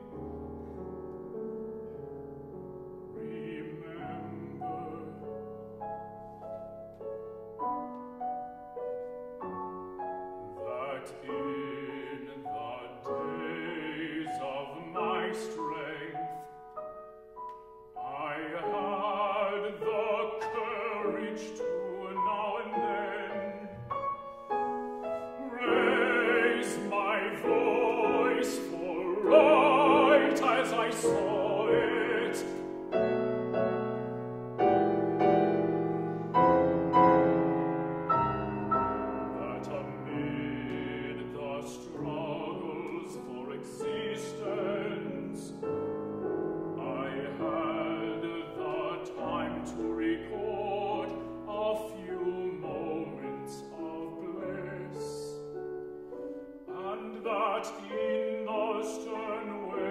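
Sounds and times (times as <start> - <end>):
grand piano chords: 0.0 - 59.9
man singing with vibrato: 3.1 - 5.6, 10.6 - 16.5, 18.0 - 23.9, 25.2 - 33.1, 39.2 - 45.7, 46.8 - 55.6, 56.6 - 59.9.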